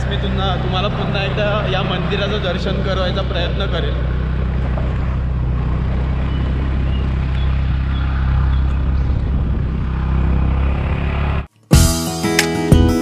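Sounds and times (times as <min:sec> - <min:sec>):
scooter engine running: 0:00.0 - 0:11.4
wind rushing on microphone: 0:05.6 - 0:11.2.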